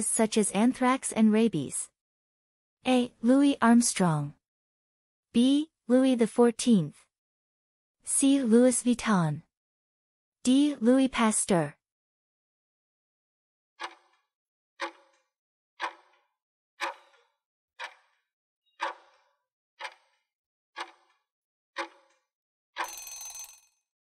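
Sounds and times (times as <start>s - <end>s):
clock ticking: 13.8s - 14.2s, 14.8s - 15.2s, 15.8s - 16.2s, 16.8s - 18.2s, 18.8s - 19.2s, 19.8s - 20.2s, 20.8s - 21.2s, 21.8s - 22.2s.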